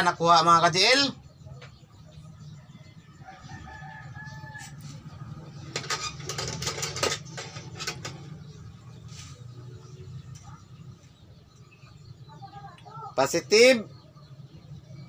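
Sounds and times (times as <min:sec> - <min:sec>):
light clicks and rattles on metal: 0:05.5 - 0:08.5.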